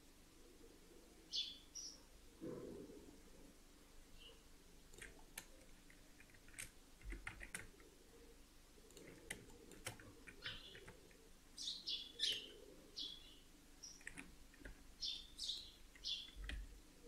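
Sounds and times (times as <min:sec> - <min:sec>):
mouse and keyboard clicks: 0:04.9 - 0:07.9, 0:08.9 - 0:11.2, 0:14.0 - 0:14.8.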